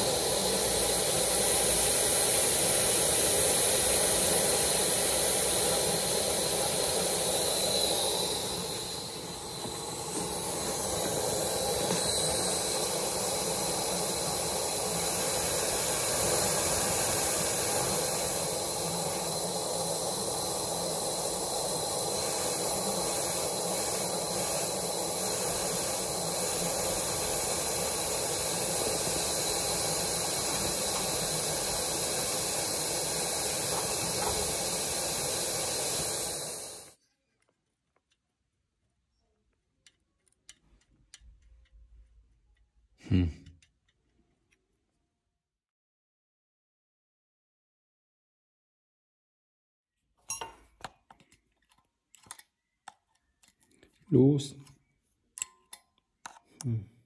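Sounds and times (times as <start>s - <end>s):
steam hissing: 0.0s - 37.0s.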